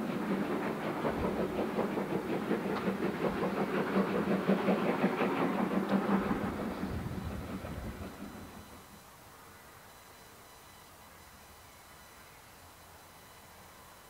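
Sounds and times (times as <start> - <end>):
train wheels clattering: 0.0 - 9.0
steady low hum: 0.0 - 14.0.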